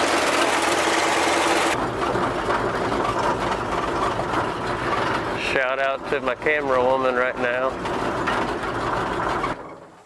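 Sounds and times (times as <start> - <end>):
truck driving off: 0.0 - 10.0
truck engine idling: 0.0 - 10.0.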